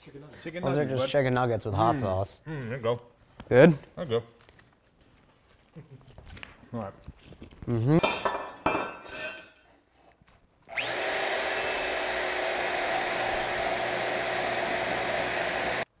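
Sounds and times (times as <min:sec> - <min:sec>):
power tool grinding metal: 0:10.7 - 0:15.9.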